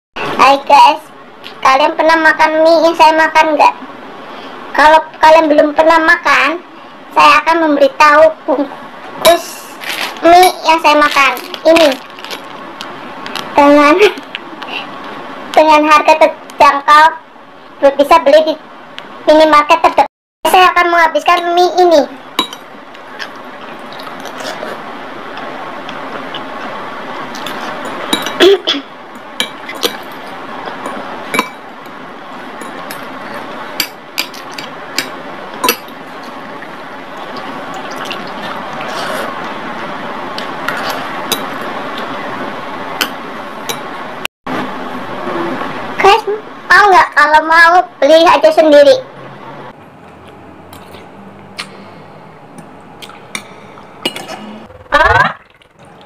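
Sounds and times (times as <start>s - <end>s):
wet chewing: 23.0s - 24.8s
cutlery clinking on glass bowl: 27.4s - 28.4s, 30.8s - 31.6s.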